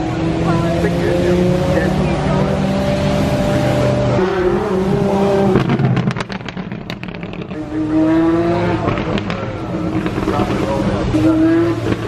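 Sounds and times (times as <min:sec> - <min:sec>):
race car approaching: 0:00.0 - 0:12.0
race car passing at speed: 0:00.0 - 0:12.0
exhaust crackles and pops: 0:05.5 - 0:07.6, 0:08.8 - 0:10.8.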